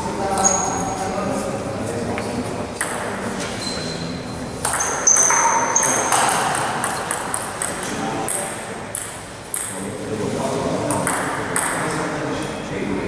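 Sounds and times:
ping-pong ball clicks: 2.8s - 3.1s, 4.6s - 9.8s, 10.9s - 12.0s.

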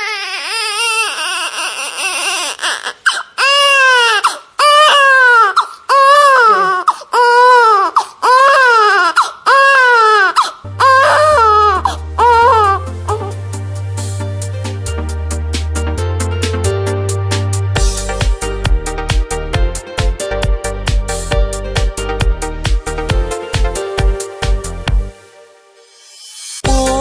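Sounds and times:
baby crying: 0.0s - 13.4s
music with low bass: 10.7s - 25.2s, 26.6s - 27.0s.

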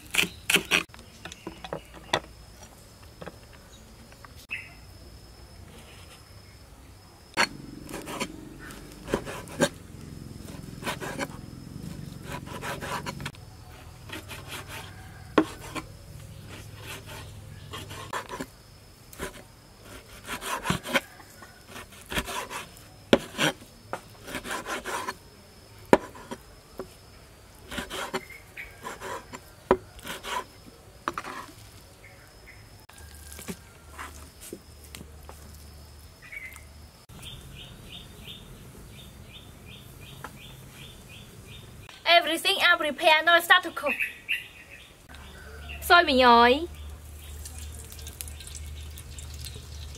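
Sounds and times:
faint insects: 0.0s - 49.9s
knife tapping and scraping board: 15.3s - 15.9s, 25.9s - 26.9s.

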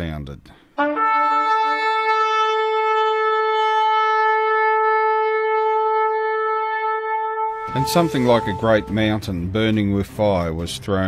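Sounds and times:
long horn blast: 0.8s - 9.8s.

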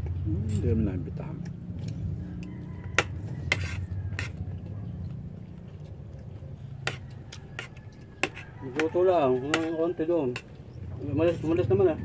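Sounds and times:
cutlery clinking on metal plates: 6.9s - 10.5s.

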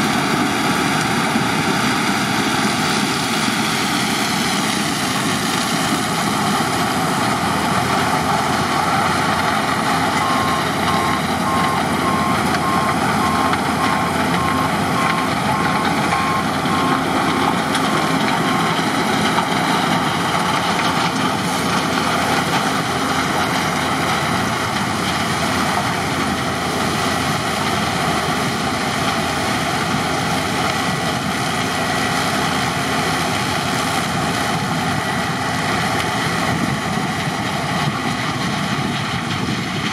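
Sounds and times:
combine harvester running: 0.0s - 39.9s.

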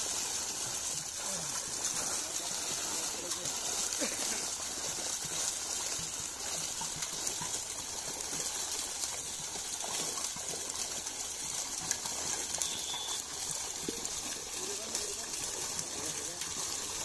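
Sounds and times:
water rushing: 0.0s - 17.0s.

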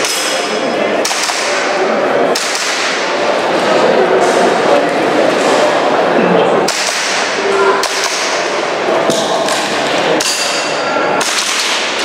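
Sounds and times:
airsoft pistol shots: 2.3s - 3.0s.

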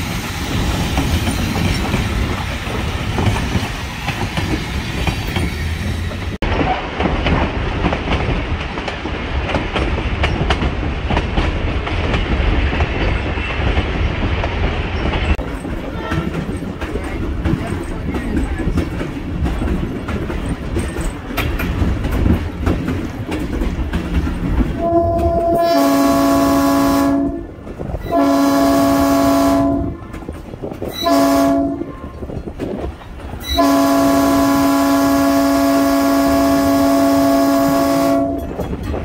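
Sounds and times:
wheels clicking over rail joints: 0.0s - 25.6s
diesel locomotive running: 0.0s - 39.0s
locomotive horn blasts: 24.8s - 27.5s, 28.1s - 30.0s, 31.0s - 31.9s, 33.5s - 38.6s.

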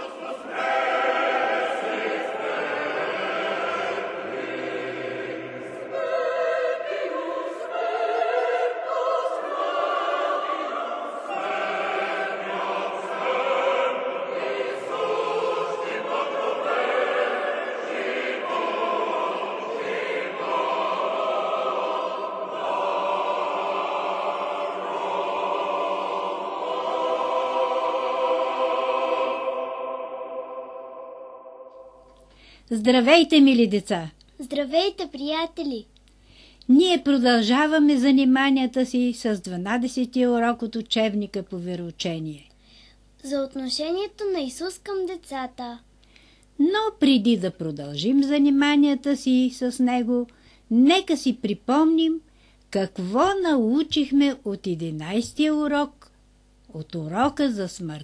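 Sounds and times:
choir singing sustained chords: 0.0s - 32.6s.

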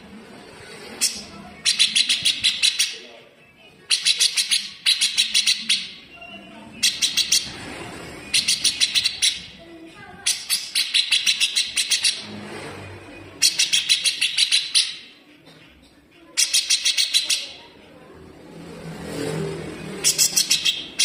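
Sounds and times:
bird harsh rattling call: 8.3s - 9.5s, 10.2s - 12.3s, 13.4s - 15.1s.

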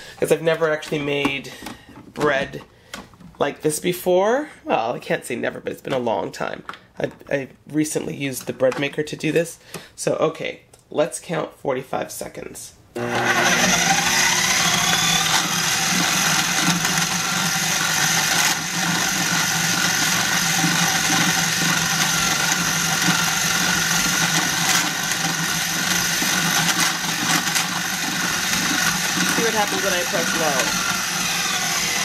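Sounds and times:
food processor motor kneading dough: 13.0s - 32.0s.

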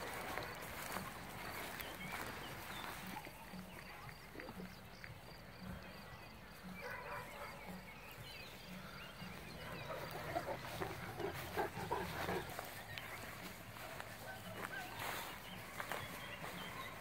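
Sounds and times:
faint outdoor ambience: 0.0s - 17.0s
dogs panting: 6.7s - 7.9s, 8.8s - 14.9s.

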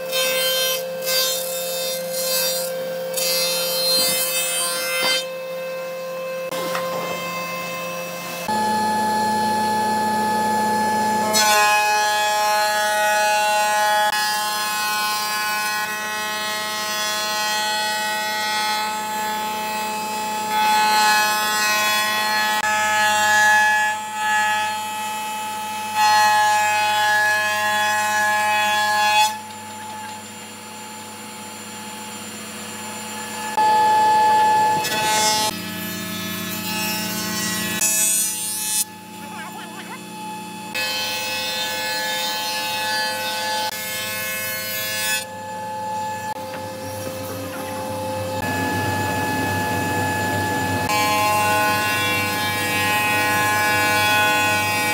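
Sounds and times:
woodworking power tools whining: 0.0s - 54.9s.

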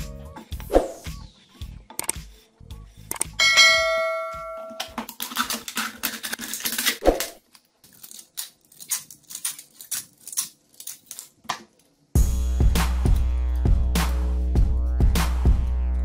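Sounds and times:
background music with steady beat: 0.0s - 5.1s, 12.2s - 16.0s
craft parts clicking and tapping: 3.1s - 3.4s.

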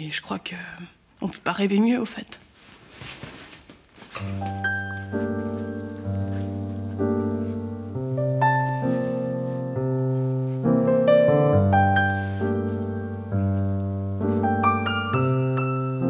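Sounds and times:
slow piano music: 4.2s - 16.0s.

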